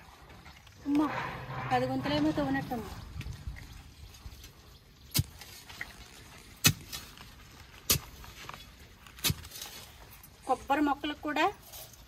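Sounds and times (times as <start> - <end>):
digging bar striking ground: 6.5 - 7.2, 7.8 - 8.6, 9.2 - 9.8.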